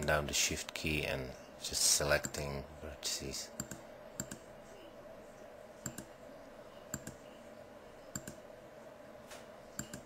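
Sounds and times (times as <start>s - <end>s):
faint steady hum: 0.0s - 10.0s
computer mouse button clicking: 5.8s - 6.1s, 6.9s - 7.2s, 8.1s - 8.4s.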